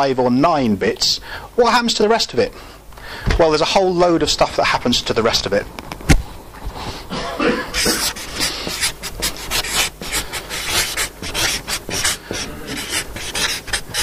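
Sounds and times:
marker pen scratching on paper: 7.7s - 14.0s.

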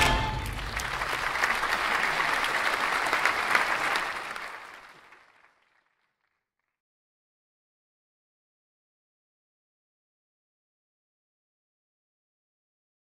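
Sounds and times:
applause: 0.0s - 6.8s.

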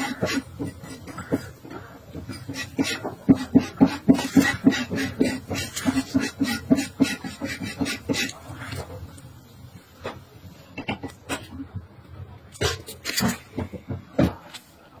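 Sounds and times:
blade scraping skin: 2.3s - 8.9s.

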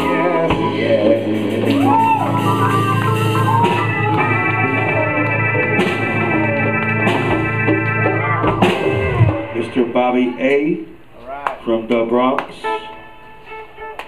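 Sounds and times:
lead guitar bent notes: 0.0s - 10.4s
live blues band playing: 0.0s - 10.4s.

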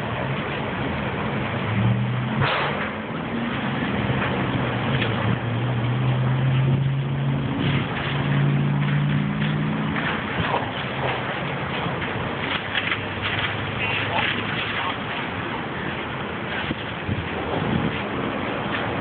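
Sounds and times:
engine running steadily: 0.0s - 19.0s
sharp pops: 2.3s - 3.1s.

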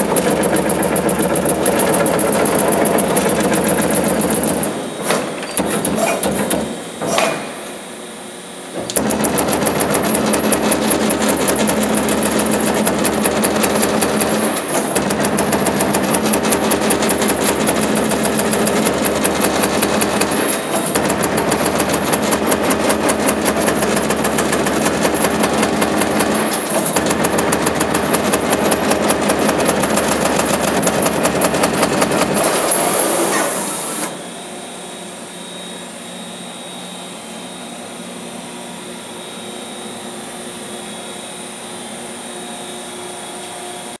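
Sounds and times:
punch press punching sheet metal: 0.0s - 7.8s, 8.7s - 34.2s
machine hum: 0.0s - 44.0s.

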